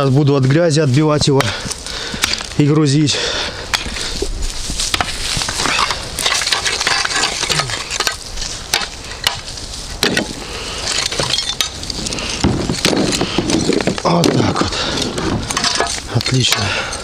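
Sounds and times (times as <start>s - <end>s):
gritty scraping and crumbling soil: 0.0s - 17.0s
sharp metallic knocks and clinks: 10.0s - 17.0s.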